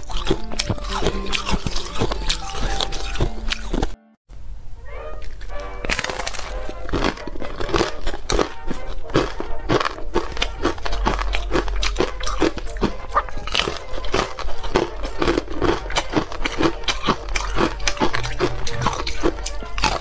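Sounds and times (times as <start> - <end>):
ice being crunched: 5.2 - 20.0.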